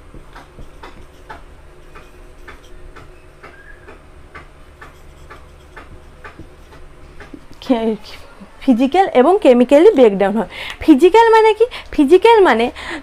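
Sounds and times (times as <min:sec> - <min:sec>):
marker squeak: 0:03.2 - 0:04.0.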